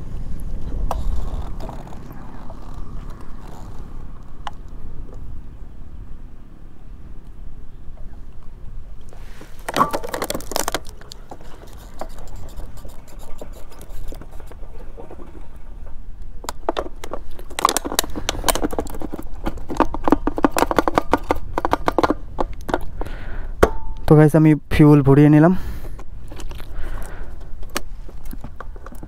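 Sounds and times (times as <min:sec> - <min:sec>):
wind rumble on microphone: 0:00.0 - 0:09.6
plastic bottle crinkling: 0:09.2 - 0:14.4.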